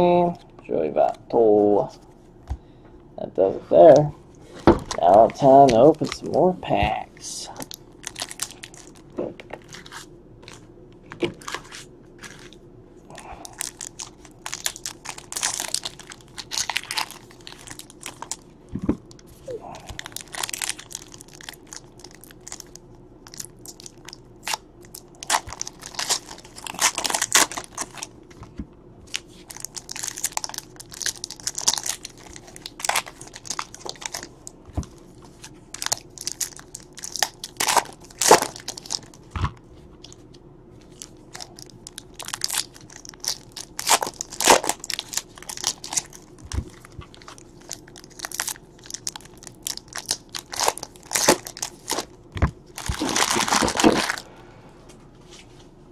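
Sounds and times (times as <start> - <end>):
foil packs tearing and crinkling: 7.6 - 9.0, 11.3 - 18.4, 19.1 - 28.1, 29.1 - 40.2, 40.9 - 54.3.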